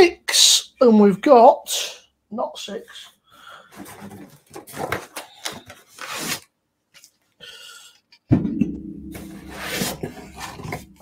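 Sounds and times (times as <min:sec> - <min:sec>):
cardboard box and cans rummaged: 0:03.7 - 0:06.4
low scraping drone: 0:08.6 - 0:11.0.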